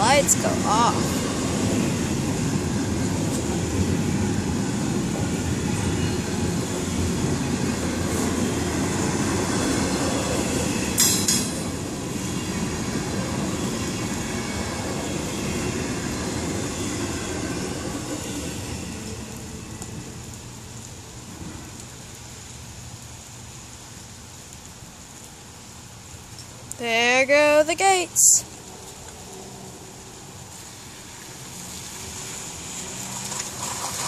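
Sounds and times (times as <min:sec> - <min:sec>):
train wheels rumbling on rails: 0:00.0 - 0:21.9, 0:28.7 - 0:34.0
sharp metallic clank: 0:11.0 - 0:11.6.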